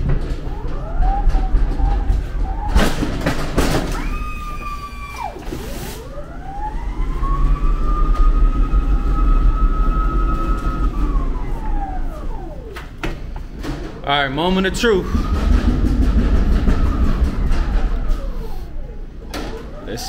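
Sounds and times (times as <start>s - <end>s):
knocks and rattles: 0.0s - 4.4s, 12.7s - 18.6s
pallet jack motor whining: 0.0s - 5.5s, 6.1s - 20.0s
low rumble: 13.9s - 19.2s.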